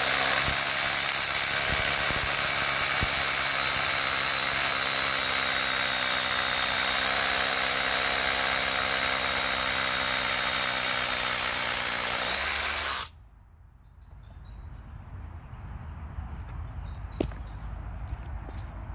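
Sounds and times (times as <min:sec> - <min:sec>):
rotary hammer drilling into concrete: 0:00.0 - 0:13.1.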